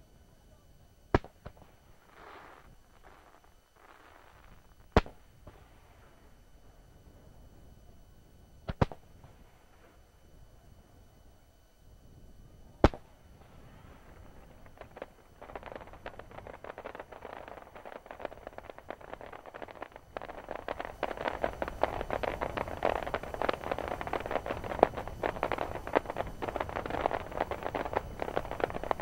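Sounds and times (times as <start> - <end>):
fireworks crackling and popping: 1.1 - 6.3, 8.6 - 10.0, 12.7 - 29.0.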